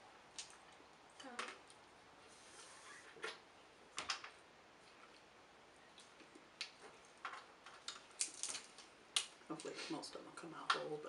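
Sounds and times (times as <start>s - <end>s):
crab shells cracking: 6.6s - 9.7s.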